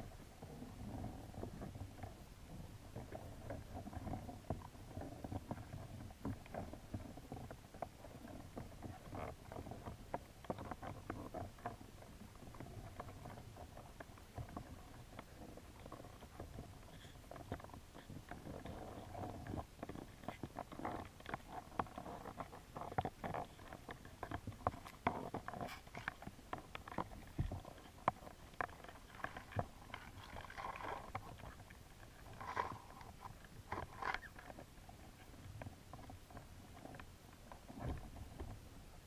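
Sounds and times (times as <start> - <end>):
crayfish claws clicking underwater: 8.2 - 34.6.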